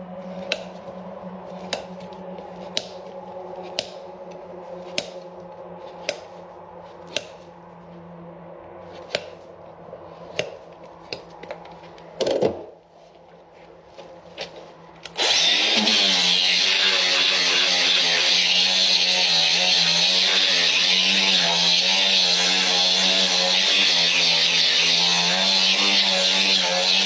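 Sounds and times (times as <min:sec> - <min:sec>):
steady hum: 0:00.0 - 0:15.8
knife scraping hoof: 0:00.1 - 0:08.1, 0:08.8 - 0:12.1
knife cutting hoof clicks: 0:00.4 - 0:00.8, 0:01.6 - 0:03.0, 0:03.6 - 0:05.3, 0:06.0 - 0:06.3, 0:07.1 - 0:07.4, 0:09.0 - 0:09.4, 0:10.3 - 0:11.3.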